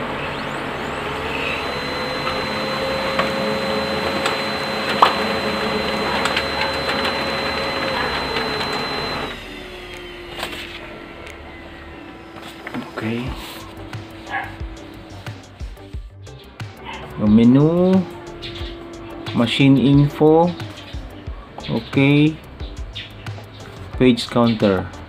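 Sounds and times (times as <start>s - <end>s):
laser printer motor whirring: 0.0s - 15.8s, 17.0s - 21.1s
paper feeding clicks: 1.8s - 11.4s.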